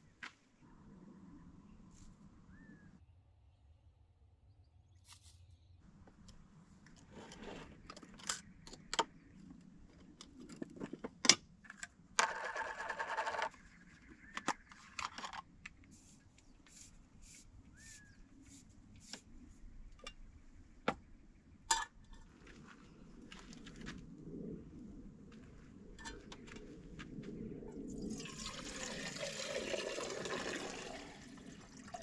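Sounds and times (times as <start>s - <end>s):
bird chirping: 2.4s - 5.9s, 15.9s - 18.7s.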